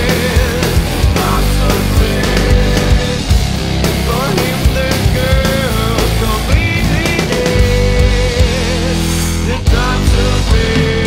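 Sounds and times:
hard rock song: 0.0s - 11.0s.

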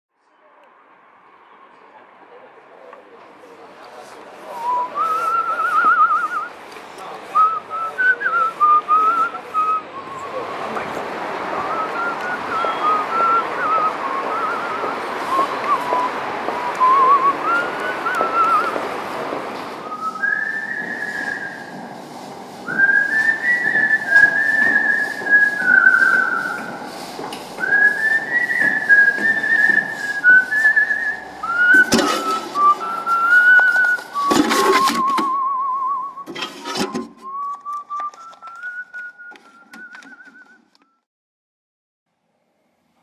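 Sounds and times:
person whistling a tune: 4.6s - 6.5s, 7.4s - 10.5s, 11.6s - 18.8s, 19.8s - 21.7s, 22.6s - 26.8s, 27.6s - 41.1s.

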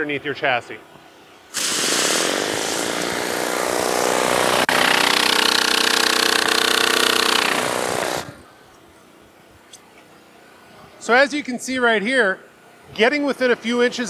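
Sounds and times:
hum: 0.9s - 9.6s.

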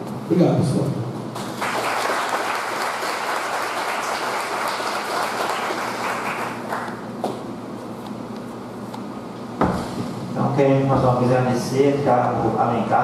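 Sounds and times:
audience applauding: 1.4s - 7.1s.

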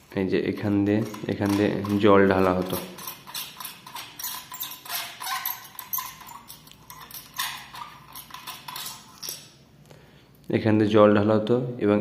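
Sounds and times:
metal parts clicking and tapping: 0.6s - 9.6s
squeaky rubbing: 0.9s - 9.5s.

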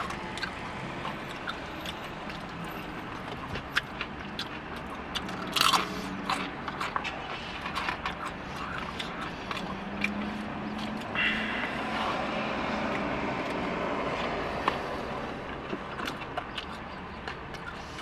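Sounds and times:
person chewing: 0.0s - 18.0s
vehicle passing outside: 4.2s - 16.8s.

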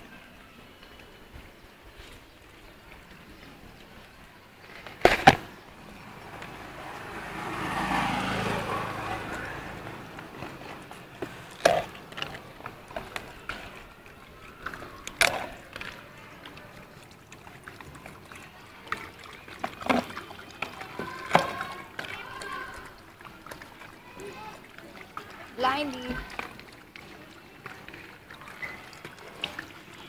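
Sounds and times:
vehicle passing on road: 5.3s - 13.2s.

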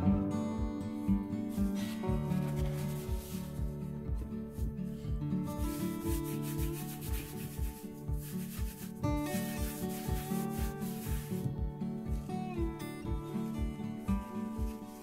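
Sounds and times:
background music with beat: 0.0s - 15.0s
paper towel rubbing: 1.5s - 3.8s, 4.5s - 11.5s, 14.1s - 15.0s.

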